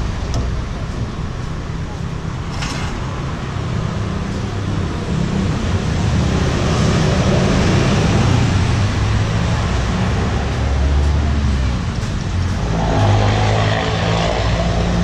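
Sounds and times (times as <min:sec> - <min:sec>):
road traffic: 0:00.0 - 0:15.0
vehicle passing: 0:03.1 - 0:15.0.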